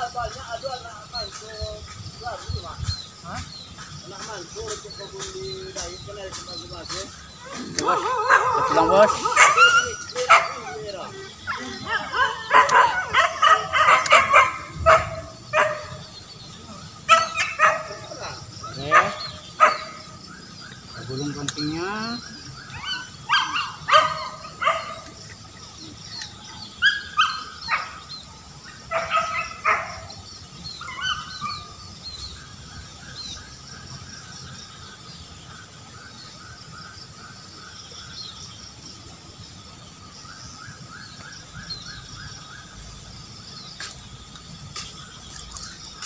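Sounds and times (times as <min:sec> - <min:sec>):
dog barking: 0:07.9 - 0:10.9, 0:11.5 - 0:16.0, 0:17.1 - 0:20.0, 0:22.8 - 0:25.2, 0:28.9 - 0:30.1.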